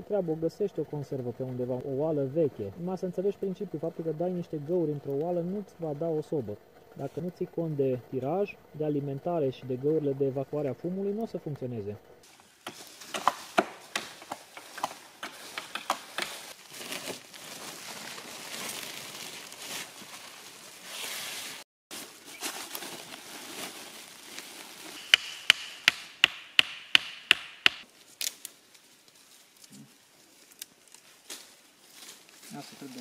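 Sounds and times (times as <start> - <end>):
rustling in dry leaves: 12.2 - 25.1, 27.8 - 33.0
wood knocks: 25.0 - 27.8.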